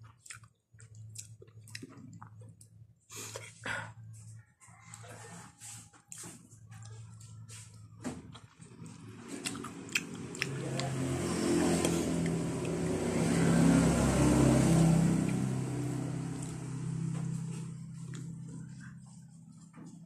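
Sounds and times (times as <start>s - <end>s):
chewing: 0.0s - 2.8s, 4.7s - 12.9s, 16.2s - 19.3s
vehicle passing: 8.5s - 20.0s.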